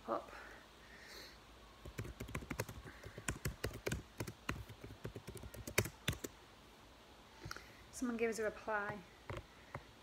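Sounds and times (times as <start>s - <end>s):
fingers tapping touchscreen: 1.8s - 6.3s.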